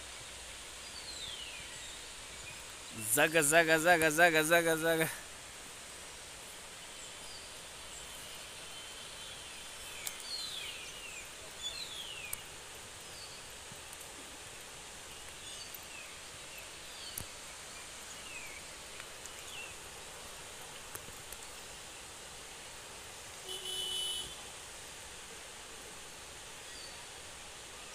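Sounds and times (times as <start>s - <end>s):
distant waterfall rushing: 0.0s - 27.9s.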